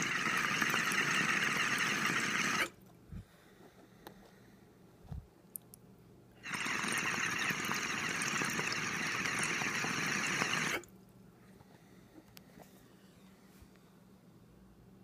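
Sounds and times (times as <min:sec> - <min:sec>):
water bubbling in a bong: 0:00.0 - 0:02.7, 0:06.4 - 0:10.9.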